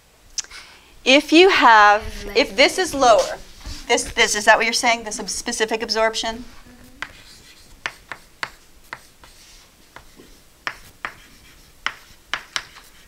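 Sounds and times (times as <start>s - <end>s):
chalk writing on a blackboard: 2.7s - 4.4s, 7.0s - 13.0s.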